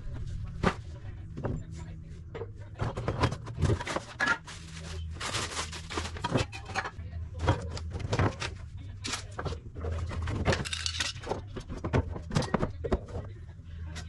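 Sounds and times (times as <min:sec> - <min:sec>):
bottles clinking and knocking: 0:09.8 - 0:13.3.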